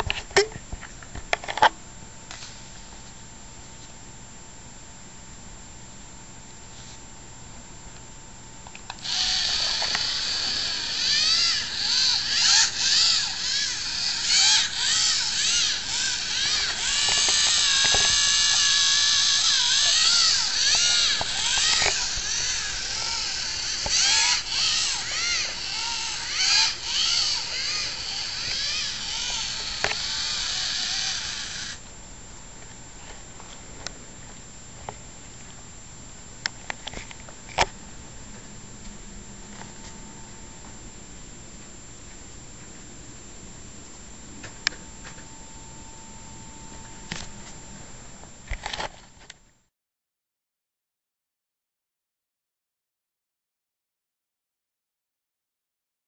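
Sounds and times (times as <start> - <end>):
robot motors whining: 9.0 - 31.8.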